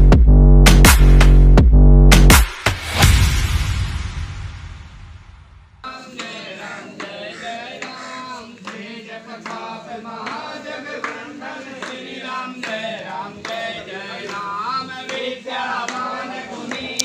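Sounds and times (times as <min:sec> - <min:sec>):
group chanting: 0:05.8 - 0:17.0.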